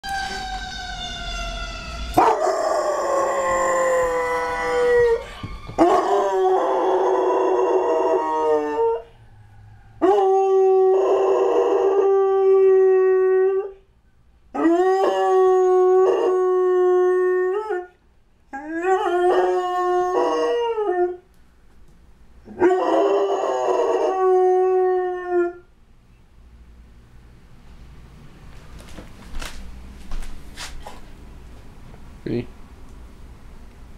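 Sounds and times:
dog howling: 0.0 - 13.8, 14.5 - 21.2, 22.5 - 25.7.

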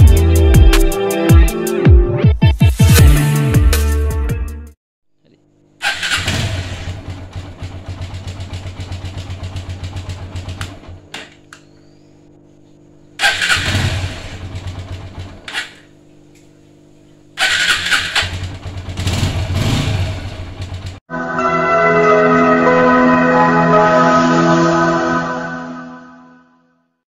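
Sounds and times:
motorcycle engine cranking: 5.8 - 11.7, 13.2 - 16.0, 17.4 - 21.0.

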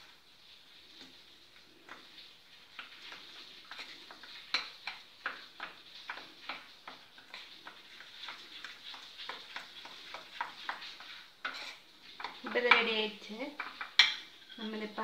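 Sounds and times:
spoon scraping metal bowl: 1.9 - 13.0.

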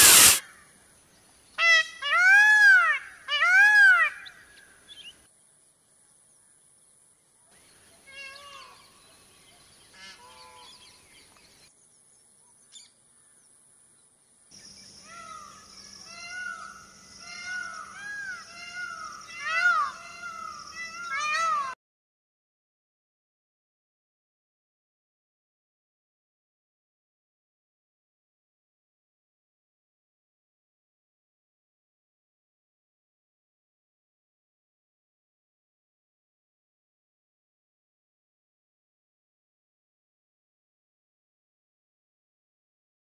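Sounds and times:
peacock calling: 0.0 - 0.6, 1.6 - 5.1, 8.0 - 9.0, 9.9 - 11.0, 15.0 - 21.8.

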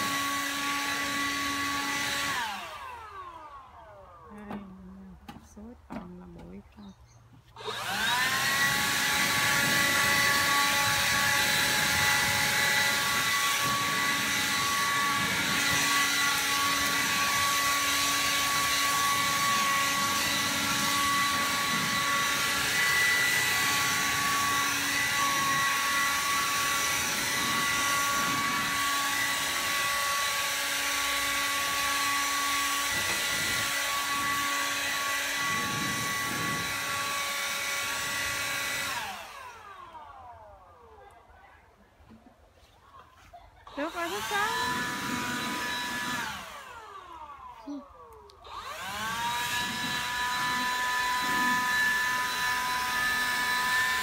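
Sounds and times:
leaf blower whining: 0.0 - 54.0.

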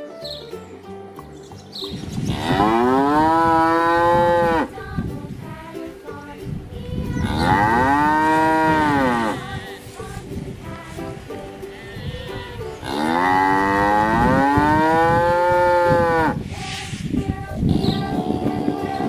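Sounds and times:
cattle mooing: 2.3 - 4.7, 7.3 - 9.7, 12.8 - 16.4.

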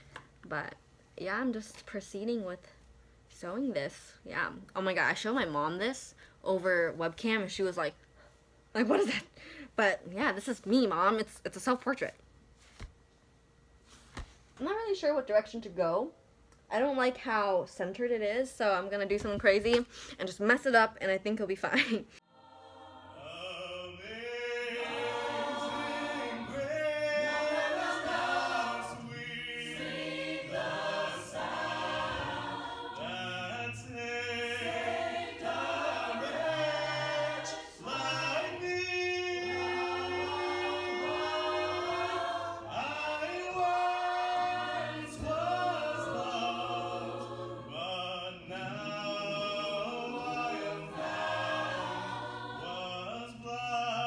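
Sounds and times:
a cappella group singing: 22.2 - 54.0.

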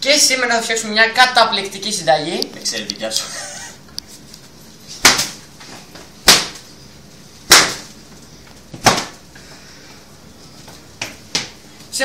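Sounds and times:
sharp smacks: 5.0 - 5.4, 6.2 - 6.6, 7.5 - 7.9, 8.8 - 9.2.

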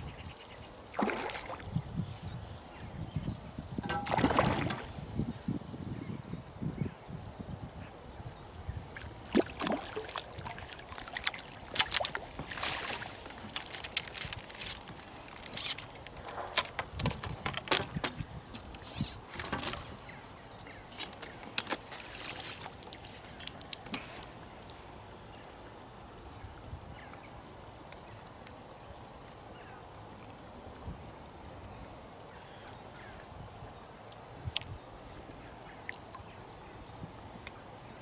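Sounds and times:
fish splashing in water: 0.9 - 1.7, 3.9 - 5.0, 9.0 - 14.4
water streaming off net: 0.9 - 1.7, 3.8 - 5.0, 9.3 - 15.8.

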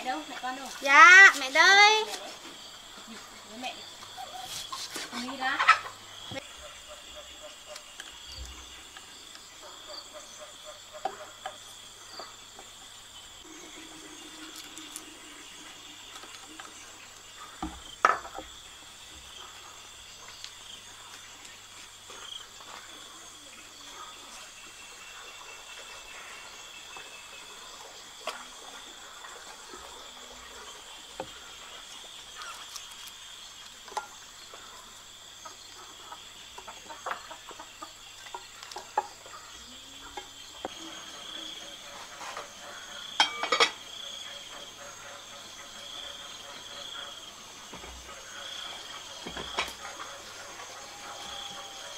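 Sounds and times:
insects chirring: 0.0 - 51.9.

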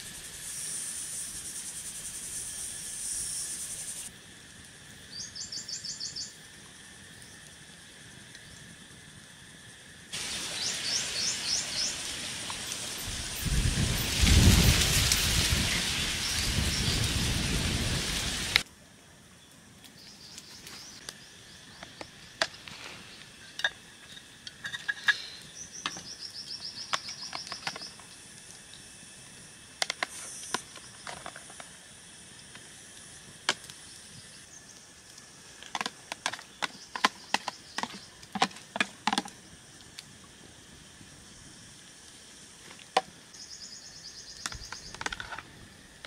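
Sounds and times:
heavy rain: 10.2 - 18.6.

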